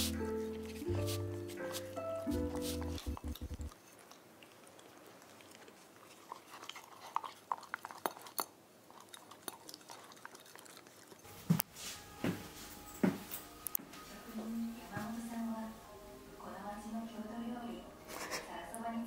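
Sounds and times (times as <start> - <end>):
puppy lapping from glass bowl: 2.5 - 11.3.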